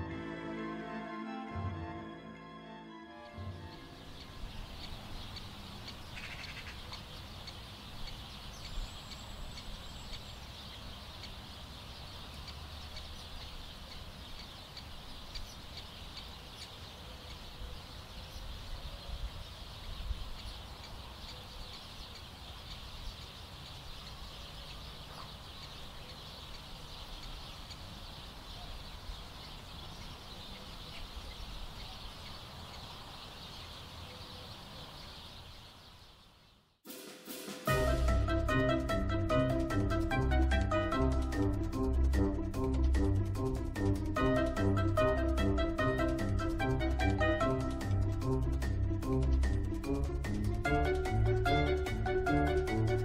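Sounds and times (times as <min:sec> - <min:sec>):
high-pitched outdoor background: 0:00.0 - 0:10.5, 0:36.9 - 0:53.0
waterbirds calling: 0:03.2 - 0:36.4.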